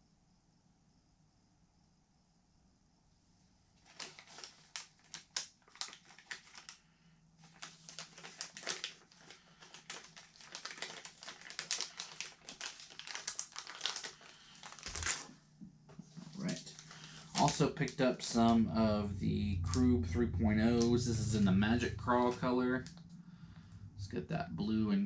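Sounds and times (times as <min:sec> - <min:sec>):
plastic packaging crinkling: 0:03.8 - 0:06.8, 0:07.4 - 0:15.4, 0:16.1 - 0:18.6.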